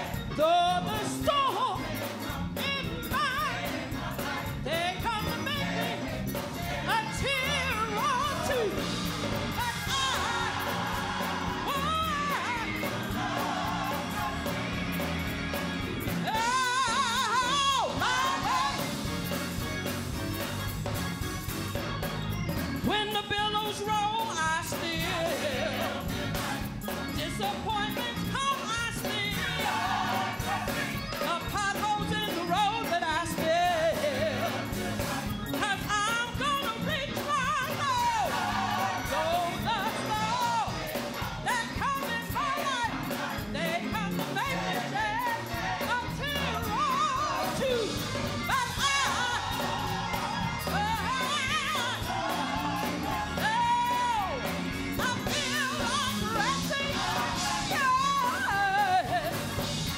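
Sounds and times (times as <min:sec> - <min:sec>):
gospel choir singing: 0:00.0 - 0:21.0, 0:23.4 - 0:59.9
woman lead singer: 0:55.0 - 0:59.5.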